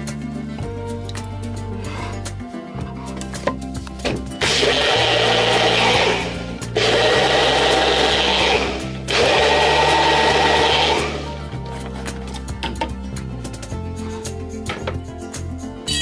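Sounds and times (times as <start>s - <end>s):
blender motor running: 4.4s - 11.4s.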